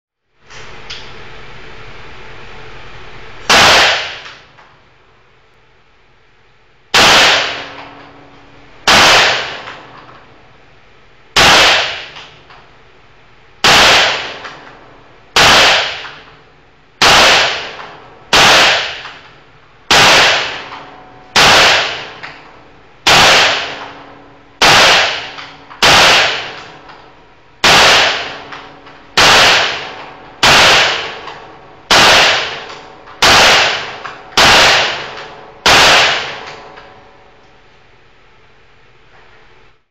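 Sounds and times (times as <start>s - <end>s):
pistol shots ringing: 3.5s - 4.3s, 7.0s - 8.0s, 8.8s - 10.0s, 11.4s - 12.3s, 13.6s - 14.7s, 15.4s - 16.4s, 17.0s - 19.3s, 19.9s - 22.4s, 23.0s - 26.9s, 27.6s - 36.9s.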